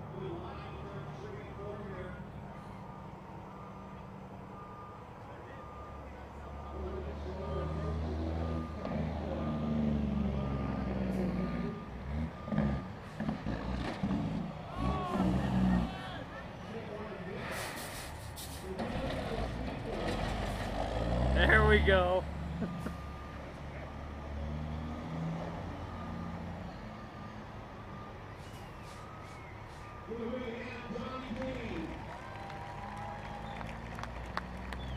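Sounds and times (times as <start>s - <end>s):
truck engine hum: 0.0s - 34.9s
reversing alarm beeping: 2.1s - 13.4s, 21.5s - 31.2s.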